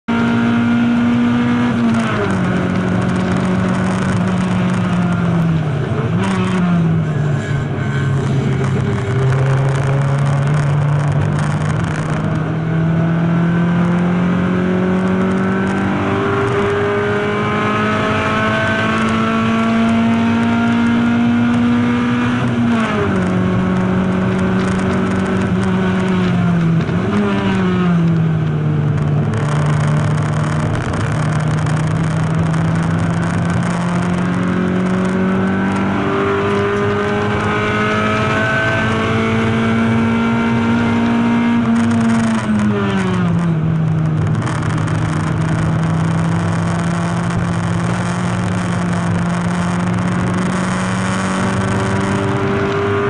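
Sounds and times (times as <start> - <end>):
race car engine revving: 0.0 - 53.0
road and tyre noise: 0.0 - 53.0.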